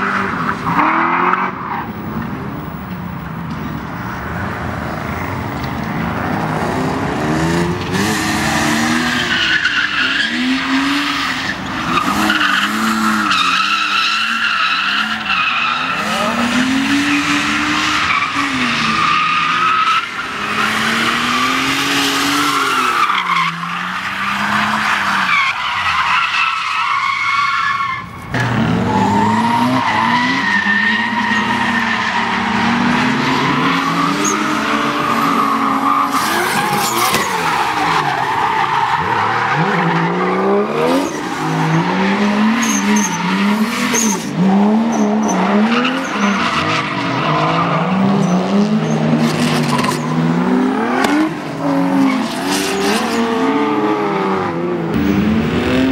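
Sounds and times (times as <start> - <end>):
car engines revving: 0.0 - 55.9
tyre squeal: 9.2 - 41.9, 42.5 - 50.2.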